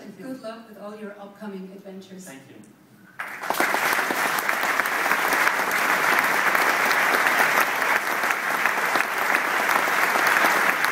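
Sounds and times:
large audience applauding: 3.2 - 10.9.

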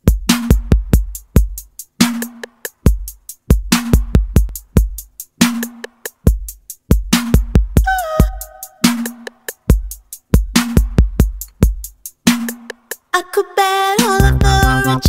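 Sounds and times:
deep kick drums: 0.0 - 1.6, 2.9 - 5.1, 6.3 - 8.4, 9.7 - 11.9, 14.2 - 14.9
ticking hi-hats: 0.0 - 13.1, 13.9 - 15.0.

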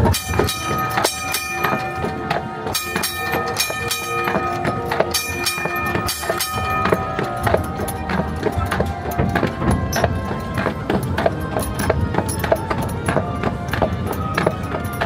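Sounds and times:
clatter of wheels and hooves: 0.0 - 15.0
steel wheels squealing on rails: 0.0 - 15.0.

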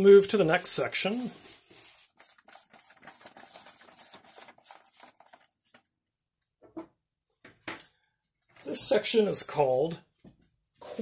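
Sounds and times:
paper rustling: 0.4 - 5.9.

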